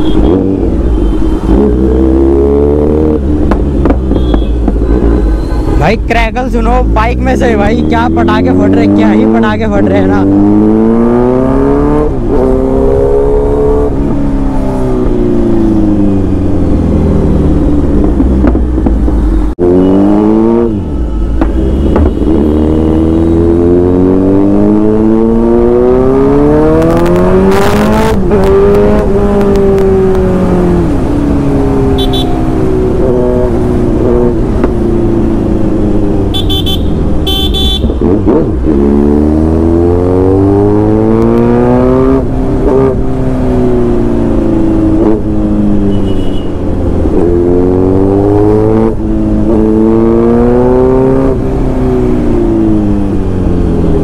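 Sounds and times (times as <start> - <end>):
motorcycle engine revving: 0.0 - 5.8, 6.8 - 54.0
horn beeping: 31.9 - 32.4, 36.3 - 38.0, 45.9 - 46.6.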